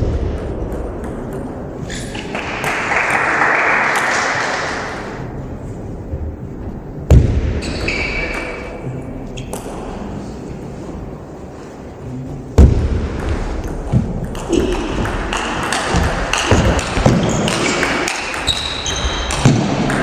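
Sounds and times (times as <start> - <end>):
applause: 2.3 - 4.8.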